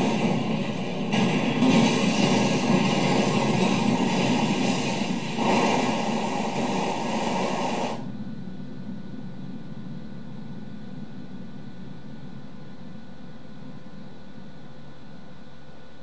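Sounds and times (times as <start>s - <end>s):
loud broadband noise: 0.0s - 8.2s.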